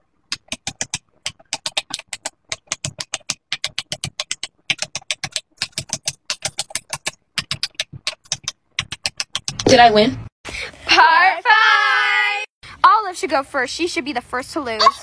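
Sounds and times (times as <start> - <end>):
fidget toy bubbles popping: 0.3 - 9.8.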